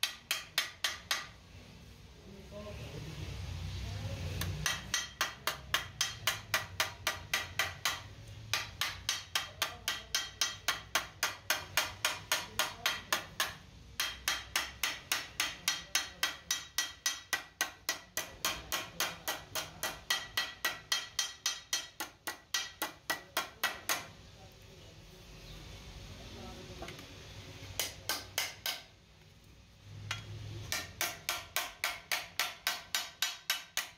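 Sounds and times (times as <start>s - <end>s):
hammer striking sheet metal: 4.4s - 24.1s, 30.1s - 33.9s.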